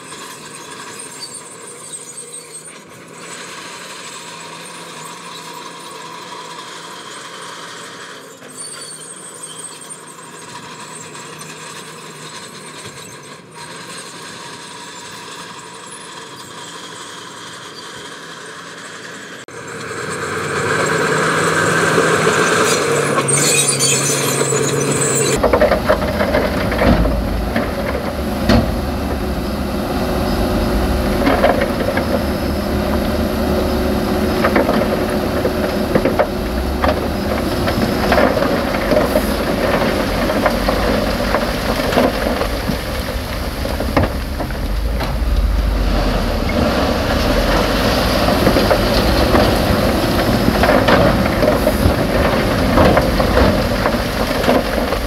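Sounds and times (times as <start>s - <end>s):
construction machinery diesel engines: 0.0s - 55.0s
machinery squealing: 0.0s - 55.0s
deep engine rumble: 25.1s - 55.0s.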